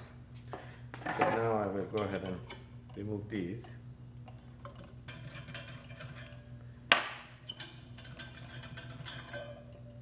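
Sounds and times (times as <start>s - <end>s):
faint high ringing: 7.4s - 10.0s
steel rods clinking: 7.4s - 10.0s.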